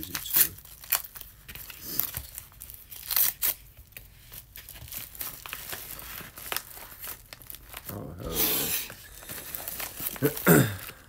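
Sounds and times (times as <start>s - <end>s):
envelope being torn open: 0.0s - 11.0s.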